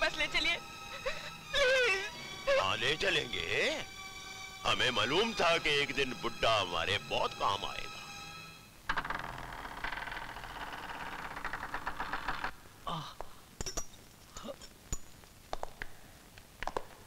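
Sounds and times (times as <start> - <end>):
heavy door creaking open: 8.9 - 12.5
light metallic clinks: 13.6 - 15.3.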